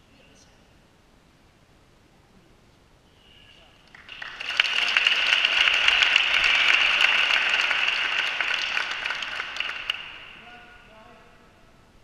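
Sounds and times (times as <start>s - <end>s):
large crowd applauding: 3.9s - 10.6s.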